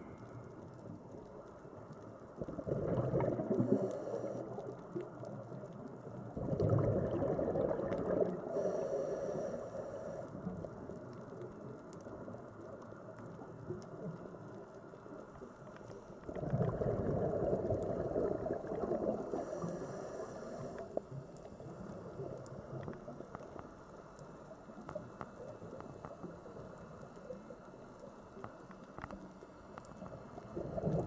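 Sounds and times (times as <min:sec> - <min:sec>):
faint clicks: 0:00.0 - 0:02.6, 0:03.2 - 0:06.4, 0:07.9 - 0:16.4, 0:17.6 - 0:31.0
low underwater wash: 0:00.0 - 0:31.0
diver exhale bubbling: 0:02.4 - 0:04.6, 0:06.4 - 0:10.2, 0:16.3 - 0:21.0, 0:30.5 - 0:31.0.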